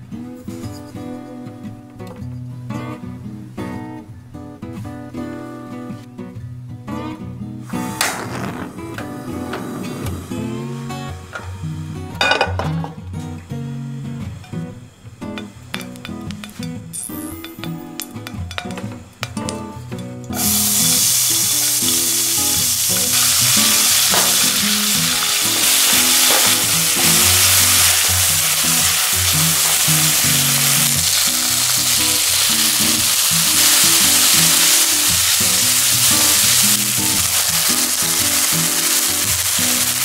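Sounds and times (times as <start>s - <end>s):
meat sizzling in a wok: 20.3s - 40.0s.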